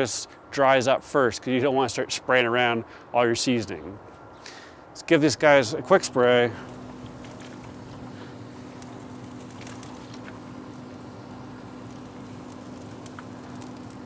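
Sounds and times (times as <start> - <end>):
low hum: 5.7 - 14.0
spray bottle hissing: 6.7 - 14.0.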